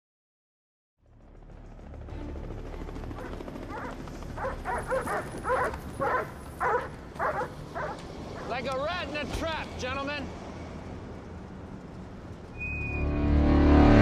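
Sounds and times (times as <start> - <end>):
dogs barking sharply: 3.2 - 8.5.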